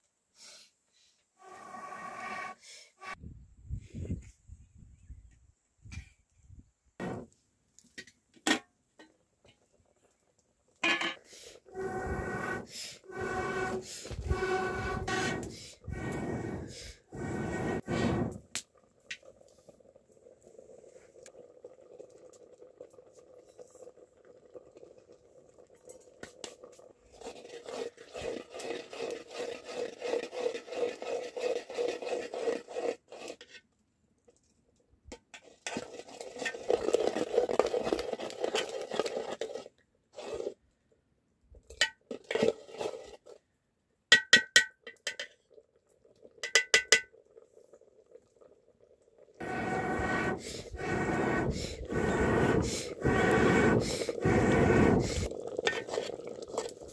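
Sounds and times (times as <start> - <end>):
metal spoon scraping a pot: 10.8 - 16.2, 27.2 - 33.6, 49.4 - 56.8.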